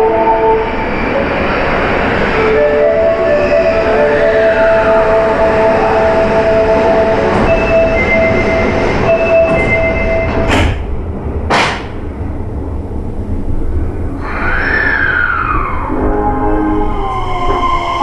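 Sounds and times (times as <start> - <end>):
subway warning tones: 0.0 - 18.0
train inverter whine: 0.0 - 18.0.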